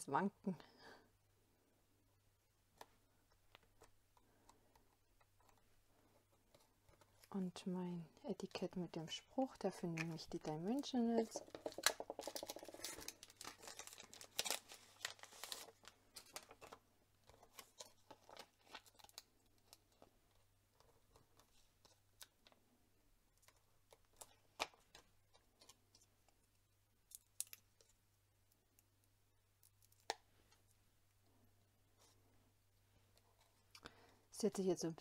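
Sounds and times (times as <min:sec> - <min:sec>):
paper rustling and scraping: 0:11.6 - 0:18.9.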